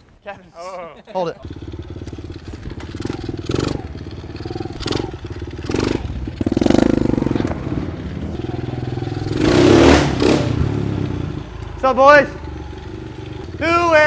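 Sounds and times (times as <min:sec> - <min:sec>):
dirt bike engine revving: 0:01.4 - 0:14.0.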